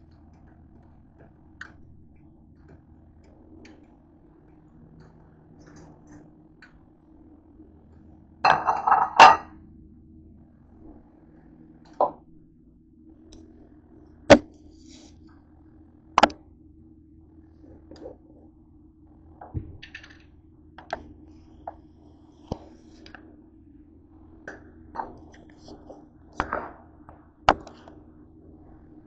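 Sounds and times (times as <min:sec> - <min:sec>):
faint low hum: 0:00.0 - 0:29.0
dishes clattering: 0:08.5 - 0:09.5.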